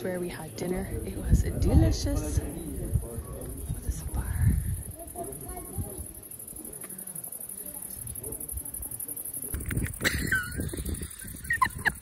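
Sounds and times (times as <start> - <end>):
crickets chirping: 0.0 - 12.0
person laughing: 10.0 - 12.0.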